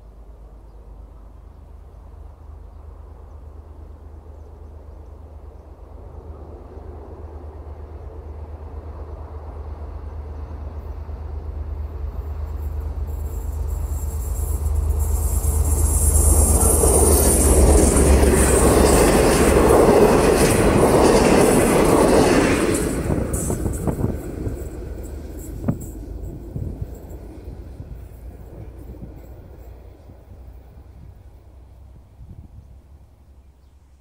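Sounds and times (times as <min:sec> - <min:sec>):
diesel locomotive engine drone: 0:00.0 - 0:34.0
rush of passing carriages: 0:07.2 - 0:32.1
wheel-on-rail noise: 0:10.1 - 0:31.9.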